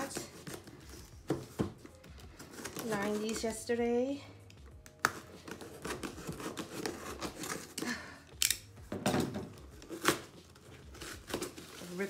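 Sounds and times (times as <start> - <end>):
packing tape peeling off cardboard: 4.8 - 7.9, 9.8 - 12.0.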